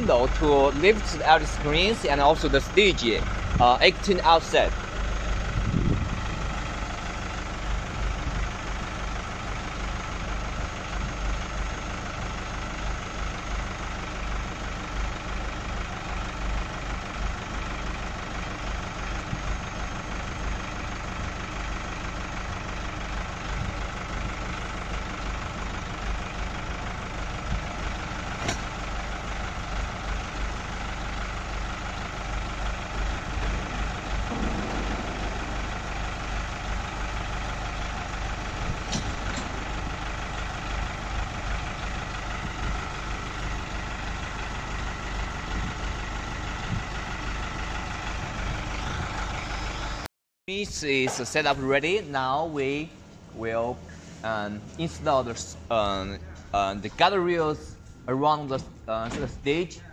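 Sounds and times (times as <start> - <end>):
hydraulic system drone: 31.3 - 43.0.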